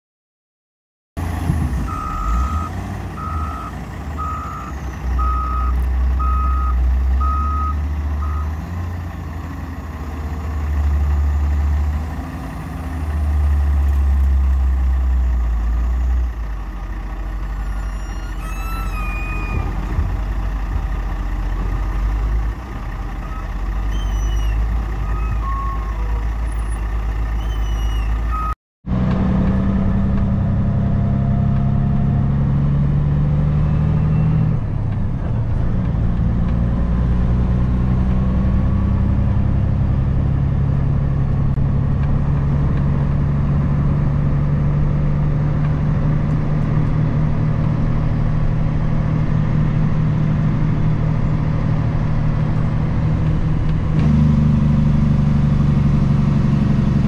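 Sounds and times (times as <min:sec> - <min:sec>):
diesel engine revving: 0:01.2 - 0:57.0
back-up alarm beeping: 0:01.9 - 0:08.5.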